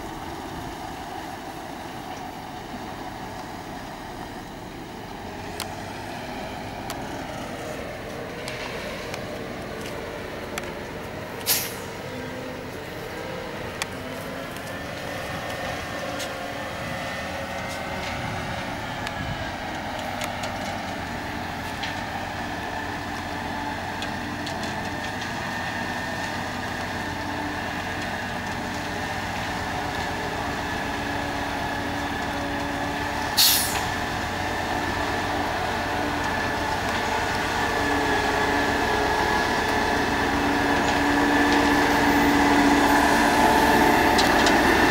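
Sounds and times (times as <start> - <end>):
diesel truck engines running: 0.0 - 44.9
air brake hiss: 11.4 - 11.9, 33.4 - 33.9.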